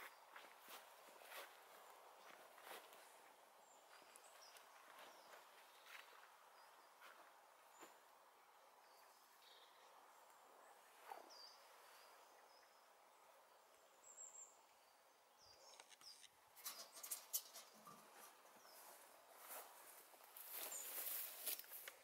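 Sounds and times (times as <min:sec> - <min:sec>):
faint bird chirps: 0:08.8 - 0:18.0
sharp clicks and scrapes: 0:15.6 - 0:18.4.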